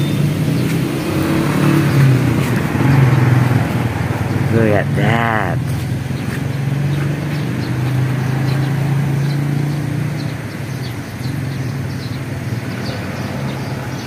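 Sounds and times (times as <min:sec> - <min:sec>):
engine running steadily: 0:00.0 - 0:14.0.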